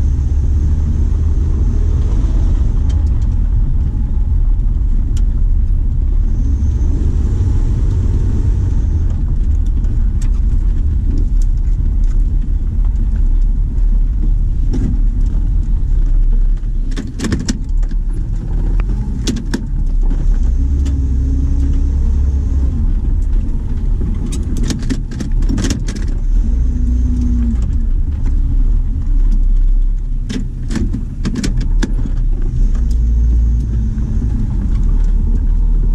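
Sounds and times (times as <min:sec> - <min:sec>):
car engine rumbling: 0:00.0 - 0:35.9
sharp rattles and knocks: 0:09.0 - 0:35.9.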